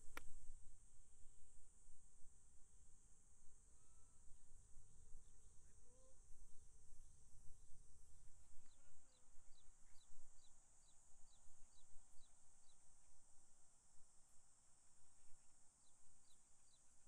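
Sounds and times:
high insect drone: 0:02.8 - 0:13.0.

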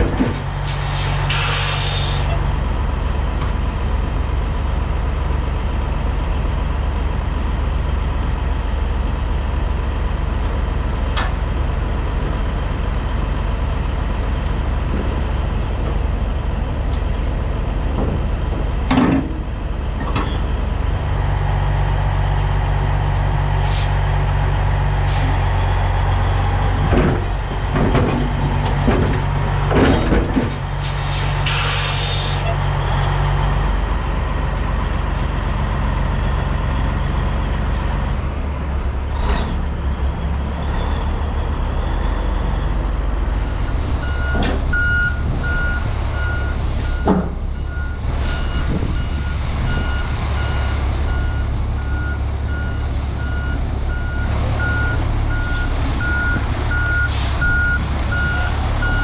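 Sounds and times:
metal knocks and clanks: 0:00.0 - 0:00.5, 0:17.8 - 0:20.5, 0:26.7 - 0:30.7
truck diesel engine idling: 0:01.8 - 0:59.0.

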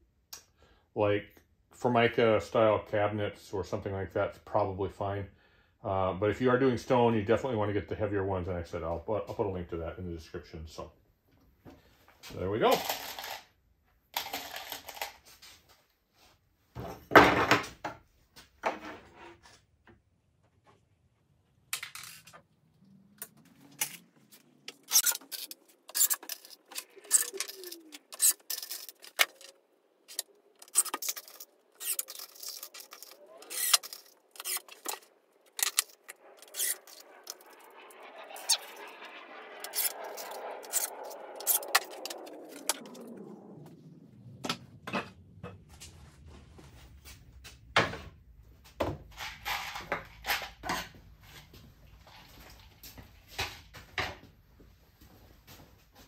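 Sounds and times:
soft rushing noise: 0:33.1 - 0:48.8.

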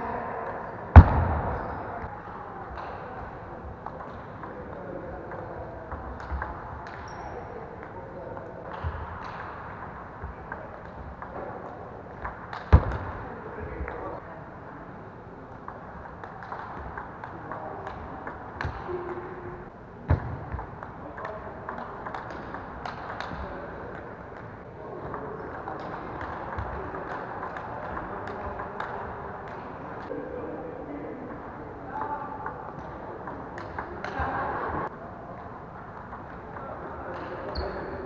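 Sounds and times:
table tennis balls clicking: 0:15.6 - 0:19.4, 0:20.6 - 0:24.6.

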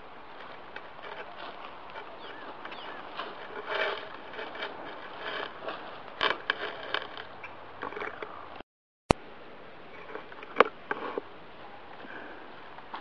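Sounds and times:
footsteps in dry grass: 0:00.0 - 0:07.4
rustling in dry grass: 0:00.0 - 0:07.5.

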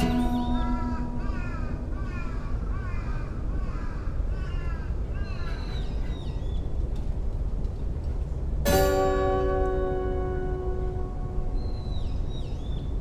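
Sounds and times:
acoustic guitar chord ringing: 0:00.0 - 0:01.3, 0:08.7 - 0:11.8
crows cawing: 0:00.0 - 0:06.4.

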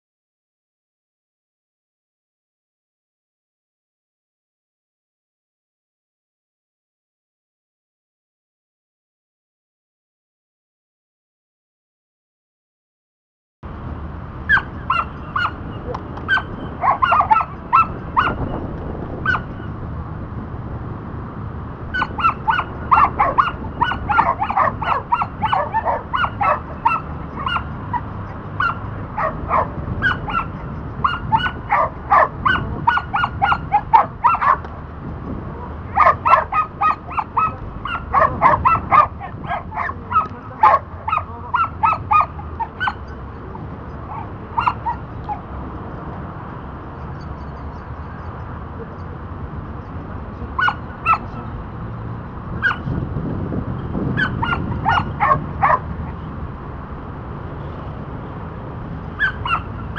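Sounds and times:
dog barking in high yips: 0:14.5 - 0:18.6, 0:19.2 - 0:19.7, 0:21.9 - 0:34.7, 0:35.6 - 0:43.2, 0:44.0 - 0:45.5, 0:50.6 - 0:51.5, 0:52.6 - 0:53.0, 0:54.1 - 0:56.2, 0:59.1 - 0:59.9.

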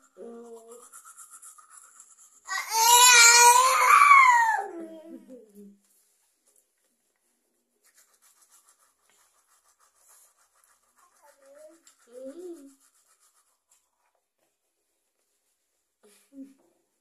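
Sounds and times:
child's gliding vocal sounds: 0:00.0 - 0:01.4, 0:02.4 - 0:05.8, 0:11.0 - 0:13.0
toothbrush scrubbing: 0:00.0 - 0:04.0, 0:07.7 - 0:14.2.

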